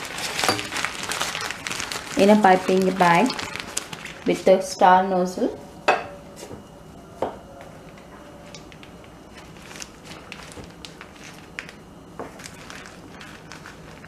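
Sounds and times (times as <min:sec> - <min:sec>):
plastic piping bag crinkling: 0:00.0 - 0:04.8, 0:07.8 - 0:14.0.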